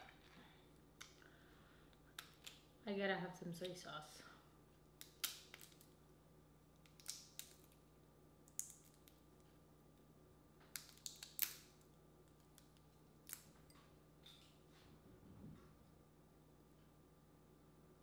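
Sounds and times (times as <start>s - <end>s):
crawfish shells cracking: 2.1s - 2.7s, 4.9s - 6.0s, 6.7s - 9.4s, 10.6s - 13.7s.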